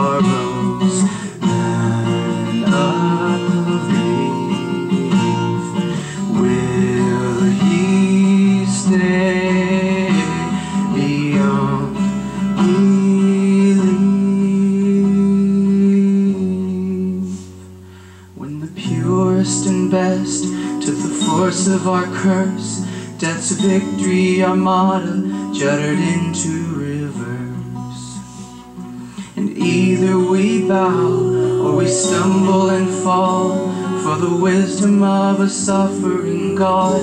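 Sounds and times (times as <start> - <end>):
acoustic guitars strummed: 0.0 - 37.0
man singing held notes: 29.2 - 37.0.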